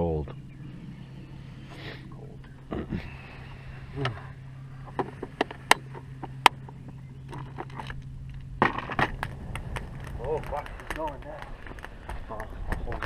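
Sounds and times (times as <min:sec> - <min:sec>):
campfire burning: 0:00.0 - 0:13.0
low steady hum: 0:00.0 - 0:13.0
wood popping and cracking: 0:04.9 - 0:13.0.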